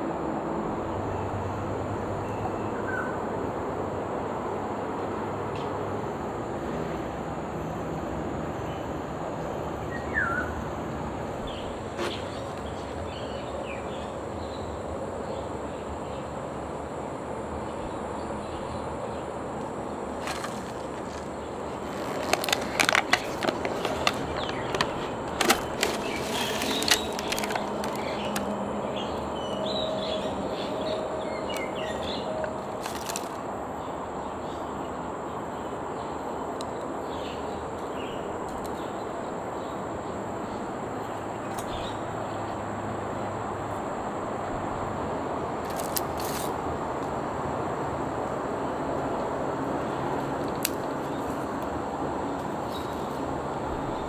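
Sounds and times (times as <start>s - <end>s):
outdoor background noise: 0.0s - 54.0s
sharp crackles and clicks: 20.2s - 28.5s.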